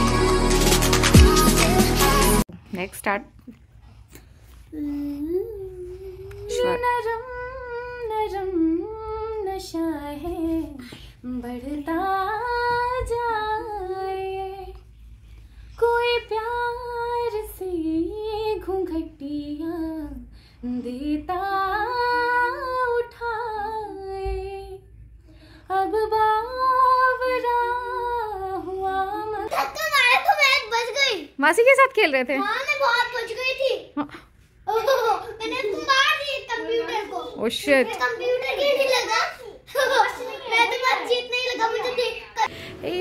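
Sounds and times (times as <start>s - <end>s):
woman singing unaccompanied: 4.8s - 14.8s, 25.7s - 29.5s, 42.7s - 43.0s.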